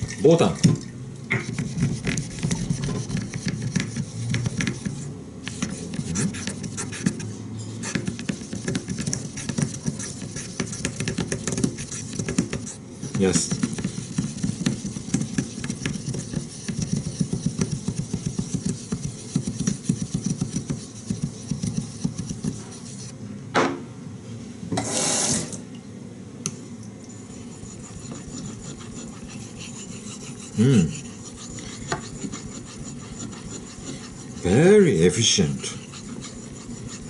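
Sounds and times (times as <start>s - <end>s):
stone scrubbing on wet whetstone: 7.9s - 23.1s, 27.3s - 37.0s.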